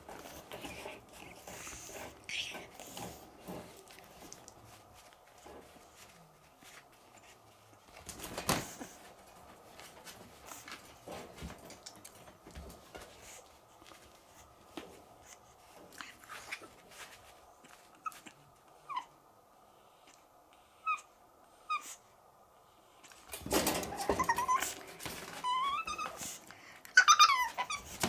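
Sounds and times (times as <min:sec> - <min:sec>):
puppy whining: 0:17.6 - 0:19.2, 0:20.7 - 0:22.1, 0:23.5 - 0:28.0.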